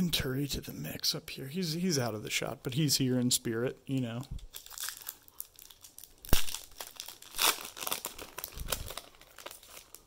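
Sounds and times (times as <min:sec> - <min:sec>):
wrapper crinkling: 0:04.5 - 0:10.0.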